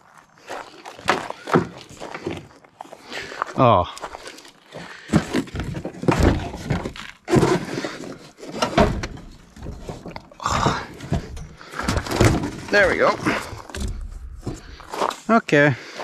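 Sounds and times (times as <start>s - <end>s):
man grunting and breathing hard: 10.4s - 11.8s.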